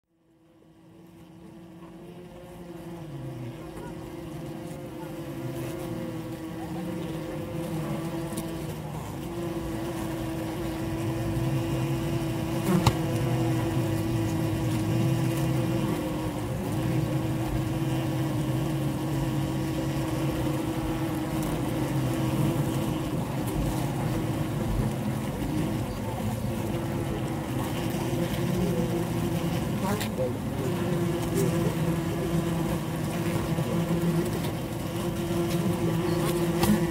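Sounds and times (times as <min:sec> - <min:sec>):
bees humming in hive: 0:00.1 - 0:36.9.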